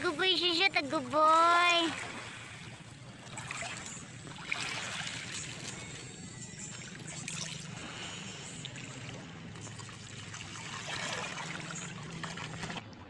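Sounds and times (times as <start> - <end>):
low steady hum: 0.0 - 13.0
dog paddling through water: 8.8 - 13.0.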